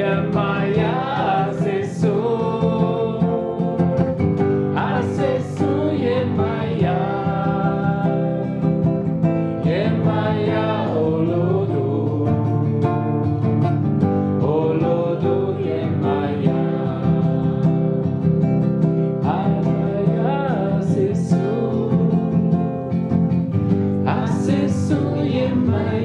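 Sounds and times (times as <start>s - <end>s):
acoustic guitar: 0.0s - 26.0s
people singing together: 0.0s - 26.0s.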